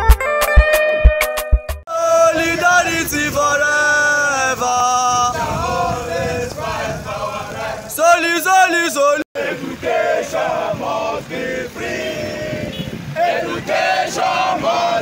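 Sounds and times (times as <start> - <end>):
beat-heavy intro music: 0.0 - 1.8
men chanting a protest song: 1.9 - 15.0.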